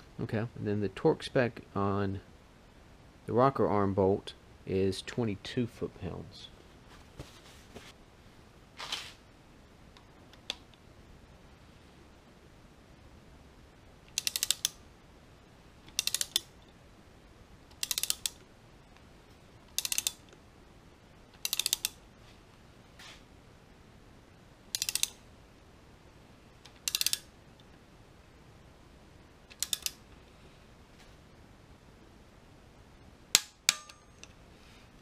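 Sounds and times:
ratchet wrench clicking: 14.1s - 14.8s, 15.9s - 16.5s, 17.7s - 18.4s, 19.7s - 20.3s, 21.4s - 22.0s, 24.7s - 25.2s, 26.7s - 27.3s, 29.5s - 30.0s.

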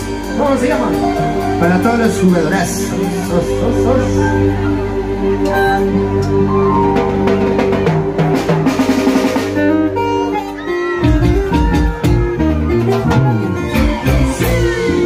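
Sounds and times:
electric bass: 0.0s - 15.0s
live band music: 0.0s - 15.0s
drum kit: 5.4s - 15.0s.

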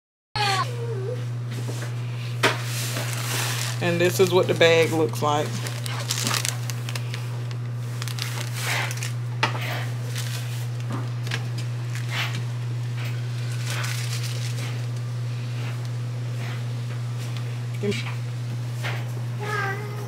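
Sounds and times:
steady low hum: 0.4s - 20.0s
plastic bag crinkling: 2.6s - 9.2s, 9.8s - 12.4s, 13.2s - 15.0s.

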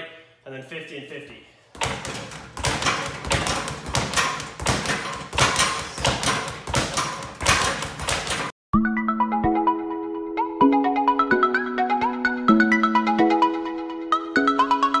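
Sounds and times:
speed bag rattling: 1.8s - 8.5s.

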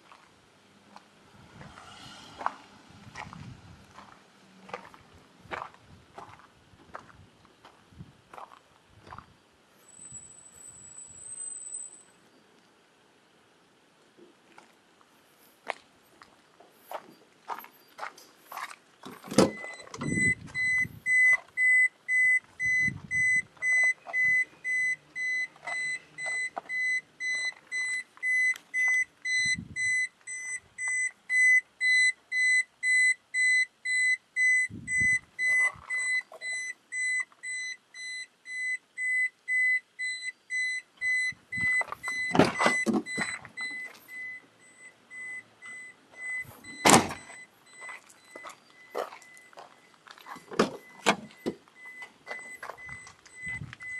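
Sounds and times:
car door warning buzzer beeping: 19.3s - 49.5s, 50.4s - 53.9s.

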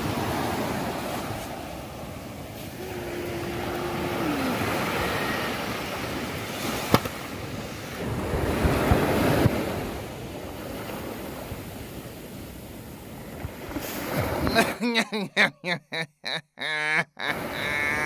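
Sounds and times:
wind buffeting microphone: 0.0s - 12.0s
ocean surf washing: 0.0s - 15.9s, 17.2s - 18.0s.

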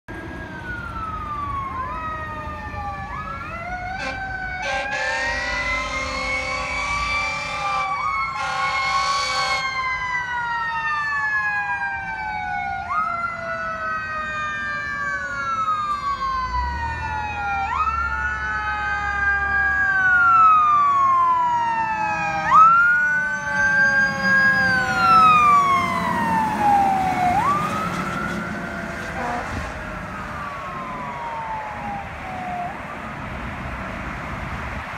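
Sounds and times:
truck engine and tyres passing: 0.1s - 10.6s, 13.0s - 34.9s
fire engine siren wailing: 0.1s - 34.9s
horn blasts: 4.0s - 9.8s, 29.0s - 29.8s.

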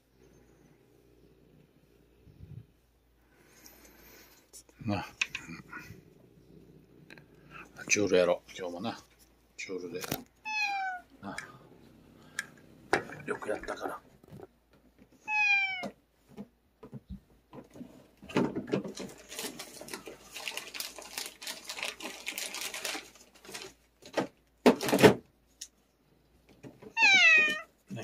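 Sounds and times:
cat meowing: 10.4s - 11.1s, 15.2s - 16.0s, 26.9s - 27.7s.

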